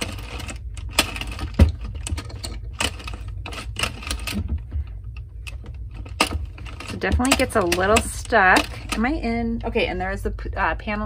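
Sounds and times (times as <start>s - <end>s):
knitting machine clicking and clacking: 0.0s - 4.6s, 5.5s - 9.4s.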